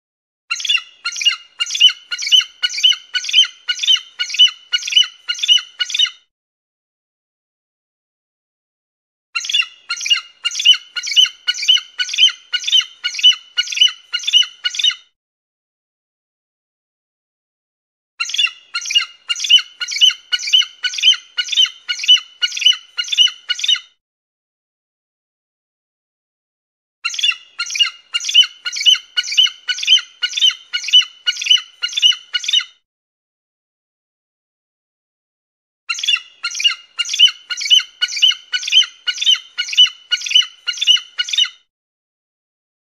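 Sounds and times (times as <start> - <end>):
eagle piping calls: 0.5 - 6.1, 9.4 - 15.0, 18.2 - 23.8, 27.1 - 32.7, 35.9 - 41.5.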